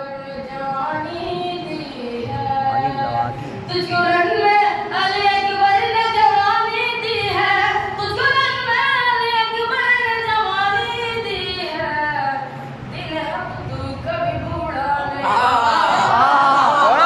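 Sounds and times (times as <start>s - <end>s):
boy singing unaccompanied: 0.0s - 12.2s.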